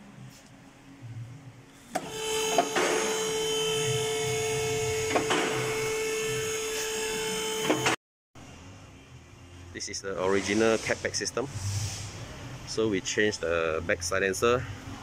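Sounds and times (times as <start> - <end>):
hydraulic pump motor whining: 1.9 - 8.0.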